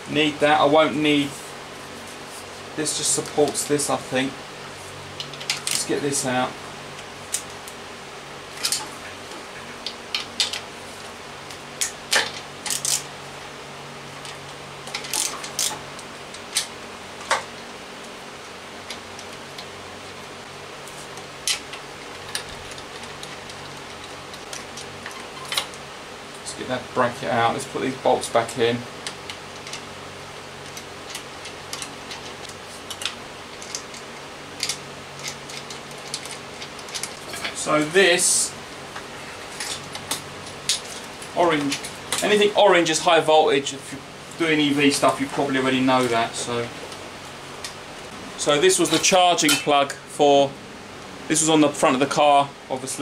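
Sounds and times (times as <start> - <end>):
faint steady hum: 0.0 - 53.0
bolts and clips clicking: 9.8 - 10.7, 30.6 - 37.6.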